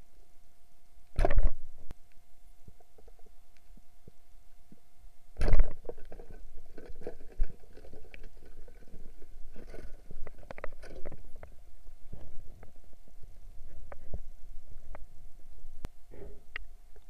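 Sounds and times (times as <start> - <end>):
clicks and crackles underwater: 1.1 - 4.8, 5.4 - 15.1.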